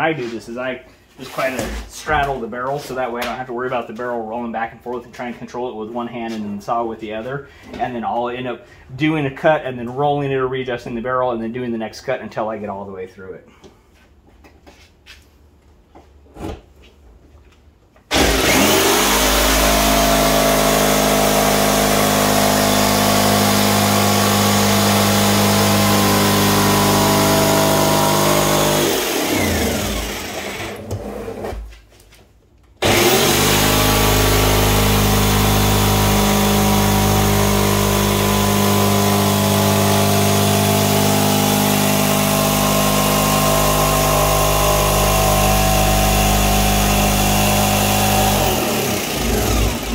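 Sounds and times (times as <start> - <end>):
jigsaw cutting plastic: 18.1 - 31.6, 32.8 - 49.9.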